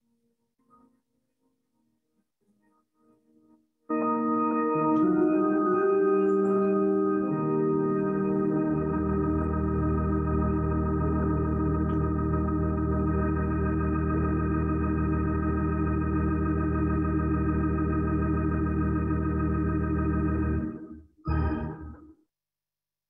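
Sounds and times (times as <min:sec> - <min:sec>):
organ chord with vibrato: 0:03.9 - 0:22.0.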